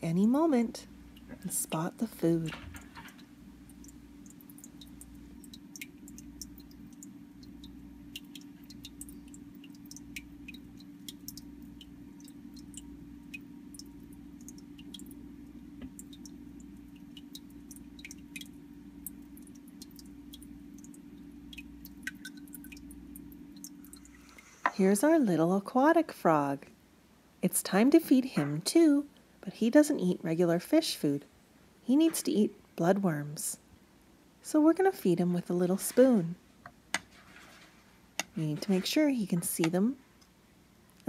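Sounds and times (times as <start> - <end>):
water drips and ticks: 0.0 - 25.3, 35.5 - 37.6, 38.2 - 41.0
aquarium pump humming: 0.0 - 26.4, 34.4 - 40.8.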